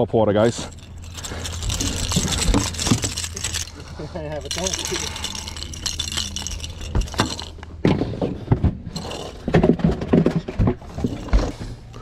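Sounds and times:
fishing lure rattling: 0.4 - 7.7, 8.9 - 9.5, 10.9 - 12.0
pliers clinking on metal hooks: 0.5 - 7.7.

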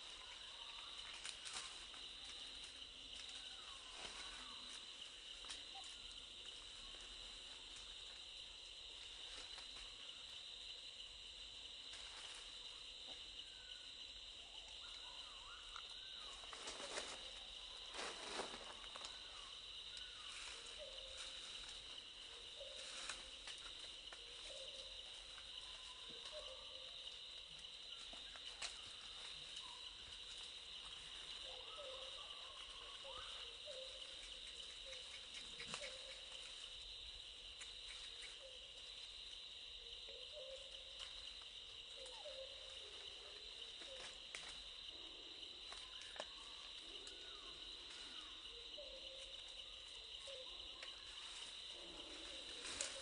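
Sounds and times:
high insect chorus: 0.0 - 53.0
faint animal calls: 31.0 - 36.6, 39.7 - 41.0, 41.9 - 44.2, 44.9 - 53.0.

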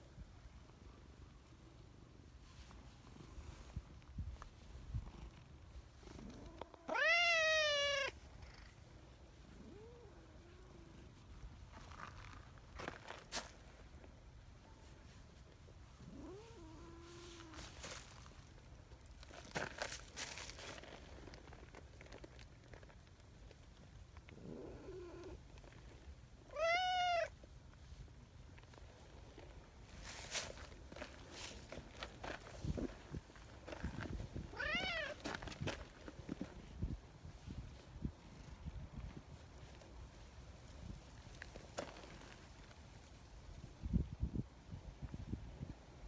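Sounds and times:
cat meowing: 6.8 - 8.2, 26.5 - 27.3, 34.6 - 35.2.

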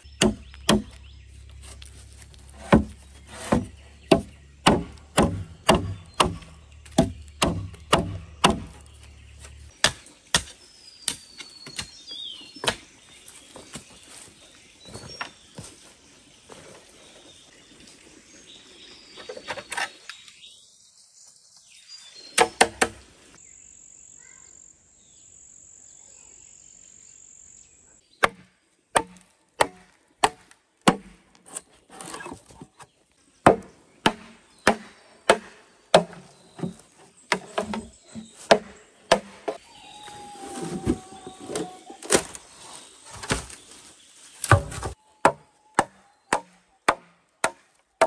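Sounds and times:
machete chopping bamboo: 0.2 - 1.0, 2.5 - 8.9, 9.8 - 12.0, 22.4 - 23.0, 28.2 - 37.9, 38.5 - 39.6, 44.4 - 47.7.

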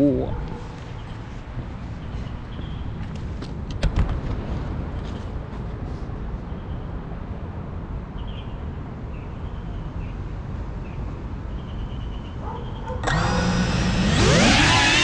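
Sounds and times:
quadcopter motors whining: 13.0 - 15.0.

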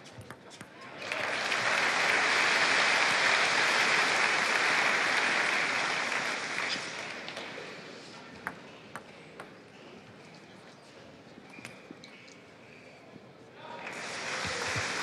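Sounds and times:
crowd applauding: 1.0 - 7.3, 13.8 - 15.0.

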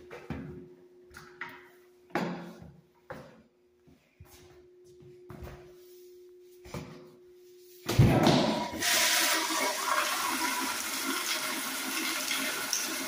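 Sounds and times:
toilet flushing: 8.2 - 13.0.

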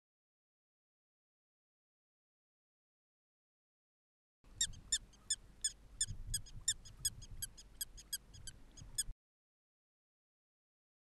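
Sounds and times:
prairie dog chirping calls: 4.5 - 9.1.

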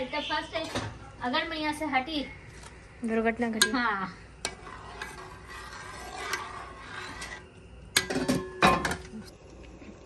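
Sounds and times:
steel ladle scraping metal pot: 4.4 - 8.6.

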